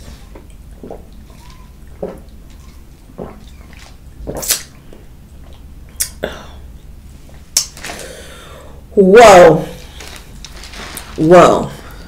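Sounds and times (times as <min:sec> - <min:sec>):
person sipping and swallowing: 0:00.3 - 0:06.7
sharp breath: 0:07.9 - 0:08.8.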